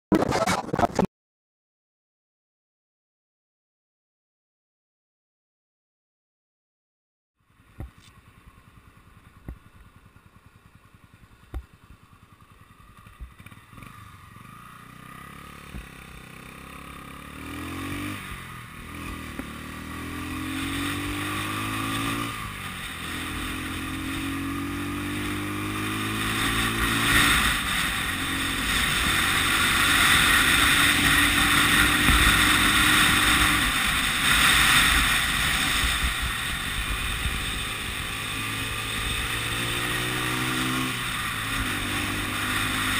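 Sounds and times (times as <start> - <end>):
motorcycle engine accelerating: 7.4 - 42.9
wind noise: 26.2 - 38.0.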